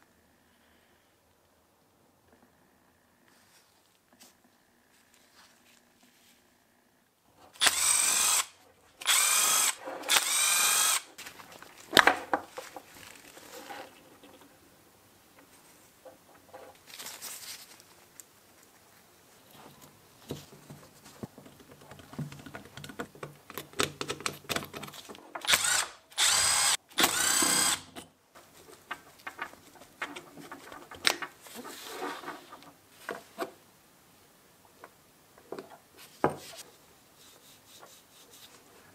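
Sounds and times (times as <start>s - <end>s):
cordless drill whirring: 7.6s - 11.1s, 25.4s - 27.9s.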